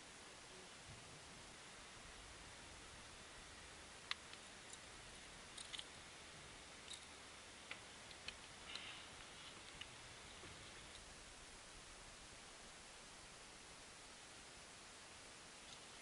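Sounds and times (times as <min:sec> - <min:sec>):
faint steady hiss: 0:00.0 - 0:16.0
small clicks and taps: 0:05.5 - 0:05.9, 0:06.8 - 0:08.9.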